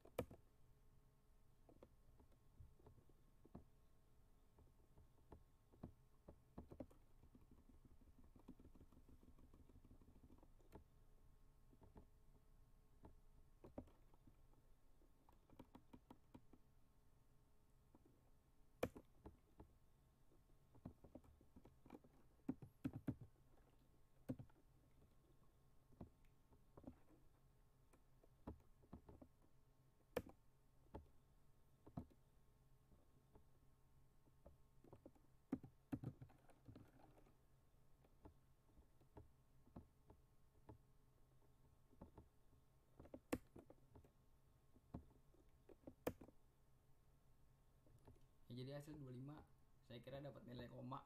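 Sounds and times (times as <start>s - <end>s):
mouse and keyboard clicks: 0.0s - 0.4s, 5.0s - 10.9s, 13.0s - 14.4s, 15.2s - 16.6s, 18.8s - 19.7s, 20.7s - 24.6s, 30.1s - 31.1s, 34.4s - 37.4s, 43.0s - 44.1s, 44.9s - 46.4s.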